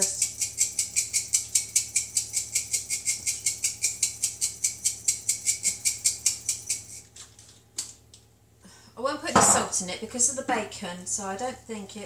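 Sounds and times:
pepper shaker rattling: 0.0s - 7.6s.

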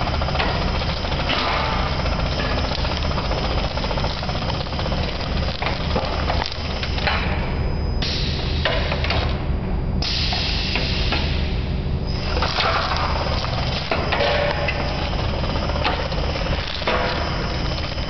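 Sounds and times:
motor hum: 0.0s - 8.0s, 12.0s - 18.0s.

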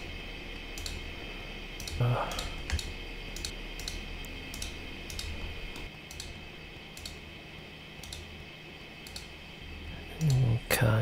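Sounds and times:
faint steady hum: 0.0s - 11.0s
mouse and keyboard clicking: 1.8s - 6.4s, 8.0s - 8.2s, 9.0s - 9.3s.

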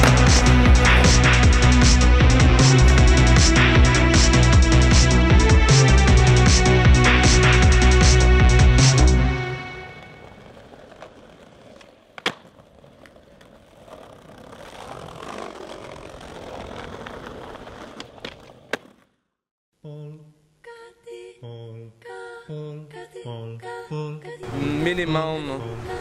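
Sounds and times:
skateboard clacks: 0.0s - 1.2s, 10.0s - 19.1s
skateboard wheels rolling on paving: 0.0s - 4.2s, 8.6s - 19.3s
person humming wordless notes: 19.8s - 20.4s, 21.2s - 24.9s.

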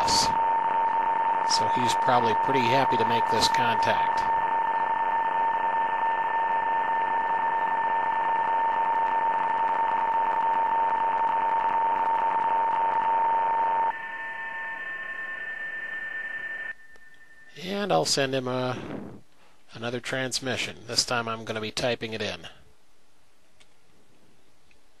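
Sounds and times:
thin steady data tones: 0.0s - 18.7s
radio static hiss: 0.0s - 19.3s.

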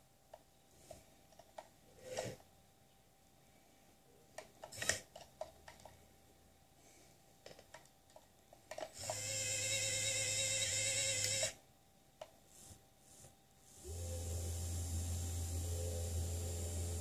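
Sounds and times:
electric hoist motor whining: 9.0s - 11.6s, 13.7s - 17.0s.

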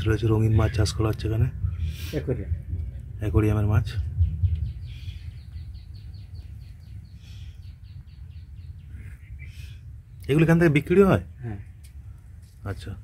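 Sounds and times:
steady low rumble: 0.0s - 13.0s
bird chirping rapidly: 3.9s - 11.4s.

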